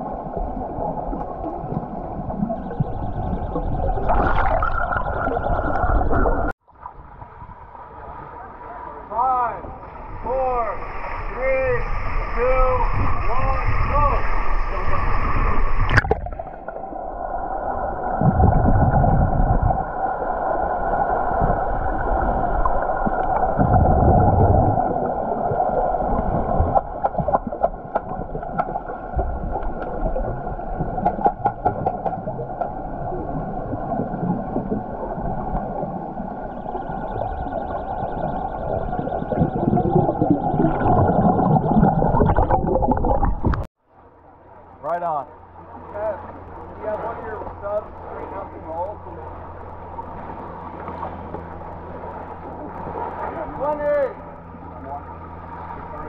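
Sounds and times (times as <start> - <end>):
muffled underwater hum: 0.0 - 6.6, 7.2 - 56.0
water bubbling: 0.0 - 7.4, 15.7 - 43.7
low water swishes: 0.0 - 56.0
underwater clicks: 15.8 - 16.8, 30.8 - 32.8.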